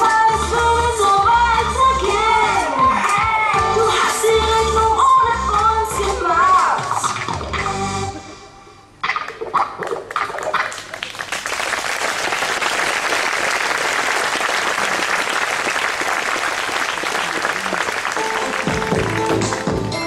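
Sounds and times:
music: 0.0 - 8.9, 18.1 - 20.0
audience applauding: 10.4 - 20.0.

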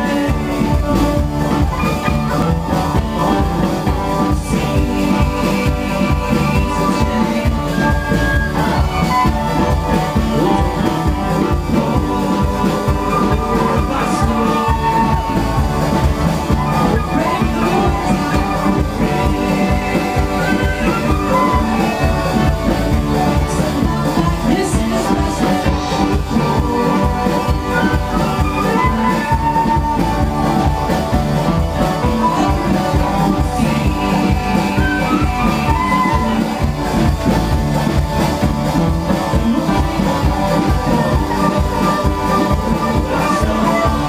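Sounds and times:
upbeat string-band music: 0.0 - 44.0.

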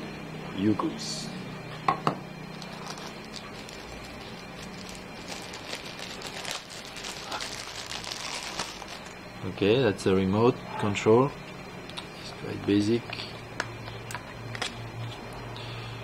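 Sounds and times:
plastic wrapping crinkling: 2.5 - 9.2.

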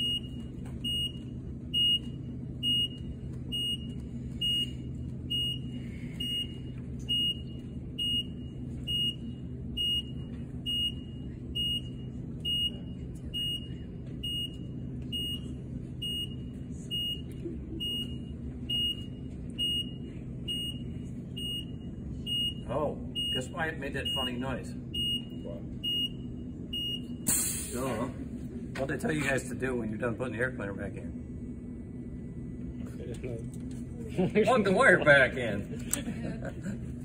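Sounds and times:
steady low hum: 0.0 - 37.0
short high warning beeps: 15.2 - 24.4, 25.0 - 27.3.

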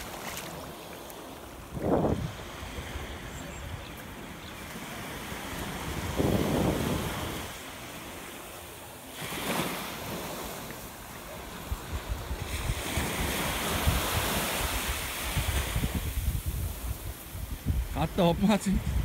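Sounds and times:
small waves washing on beach: 0.0 - 19.0
wind buffeting microphone: 1.6 - 7.6, 11.6 - 19.0.

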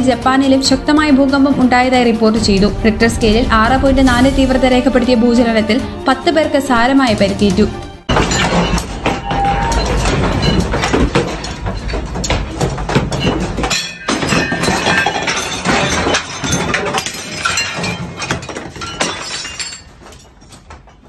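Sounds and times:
low earthquake rumble: 2.3 - 6.1
objects and glassware rattling: 8.1 - 21.0.

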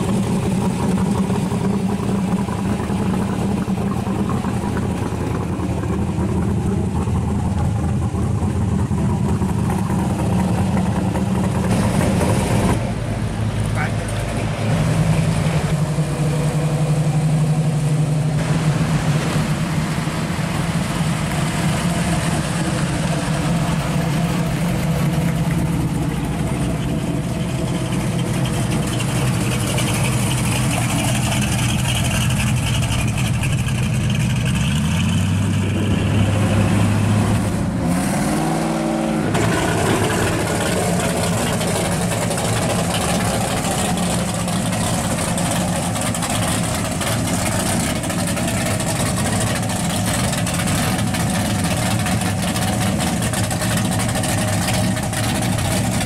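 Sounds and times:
cars driving past slowly: 0.0 - 56.0
engine revving: 0.0 - 56.0.

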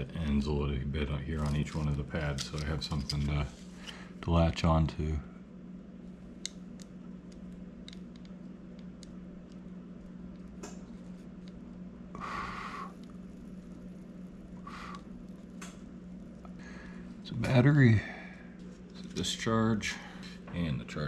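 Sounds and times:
steady low hum: 0.0 - 21.0
wire handling clicks: 1.4 - 3.4, 6.3 - 11.8
soldering iron hissing: 12.1 - 15.8.

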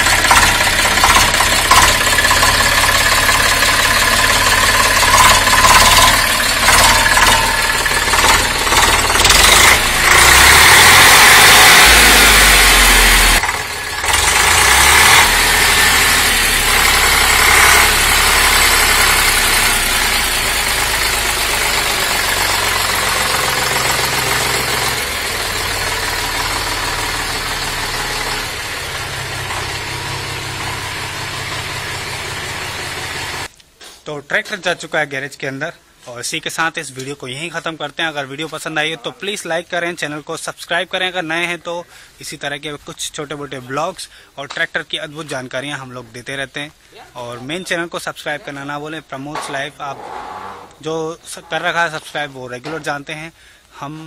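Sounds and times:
tractor diesel engine running: 0.0 - 33.5, 49.4 - 52.8.

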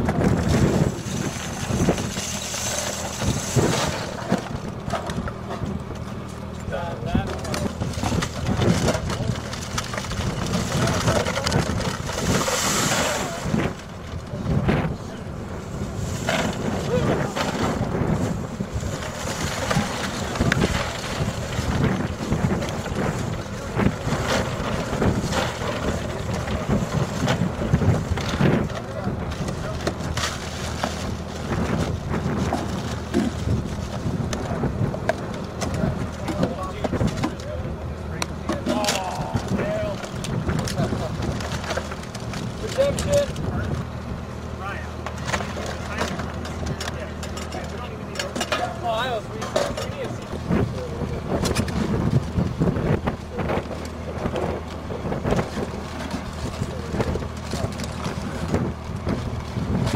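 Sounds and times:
boxes dropped into wooden crates: 0.0 - 5.6
wind buffeting microphone: 0.0 - 48.1, 48.7 - 59.9.

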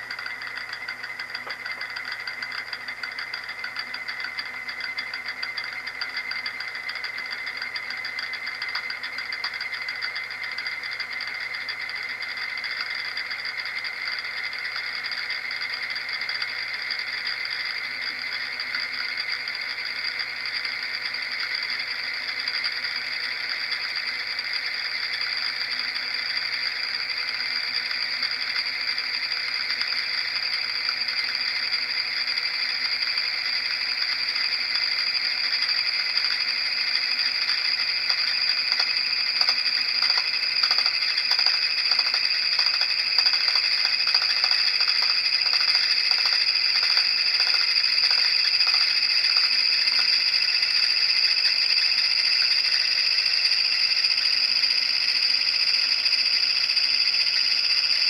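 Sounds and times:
spinning disc whirring ring: 0.0 - 58.0.

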